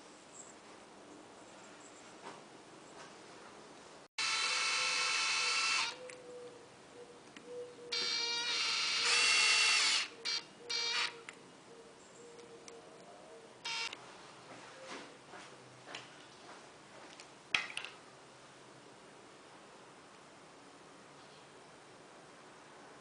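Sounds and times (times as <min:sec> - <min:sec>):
cordless drill motor whining: 0:04.2 - 0:06.1, 0:07.9 - 0:11.2, 0:13.7 - 0:14.0.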